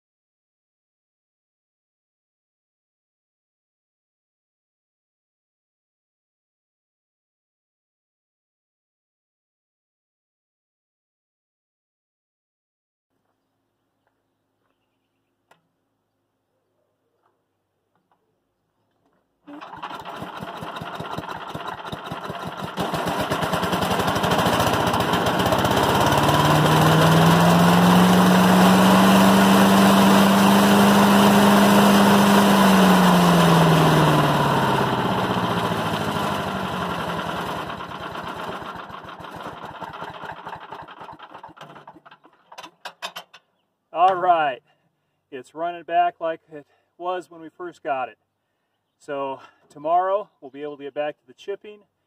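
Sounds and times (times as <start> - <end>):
chipper-shredder engine running: 19.5 - 42.2.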